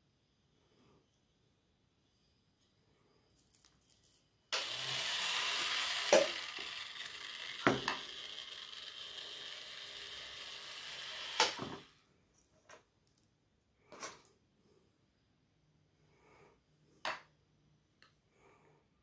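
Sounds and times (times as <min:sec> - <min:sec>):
small gear motor whirring: 0:04.5 - 0:11.9.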